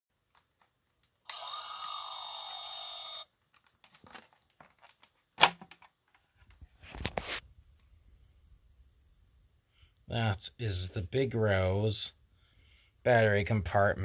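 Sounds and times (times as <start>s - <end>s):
handling rustle: 3.5s - 7.4s.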